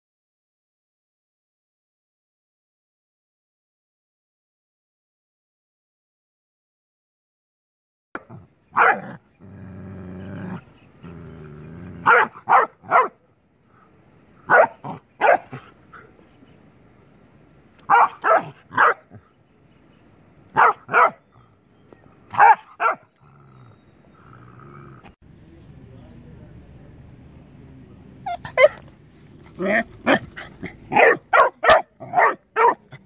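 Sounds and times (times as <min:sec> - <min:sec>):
puppy barking: 0:08.2 - 0:09.2, 0:12.0 - 0:13.2, 0:14.4 - 0:15.7, 0:17.8 - 0:19.2, 0:20.5 - 0:21.3, 0:22.3 - 0:23.1, 0:28.3 - 0:28.9, 0:29.6 - 0:33.0
dog low growl: 0:08.3 - 0:12.1, 0:23.1 - 0:25.2.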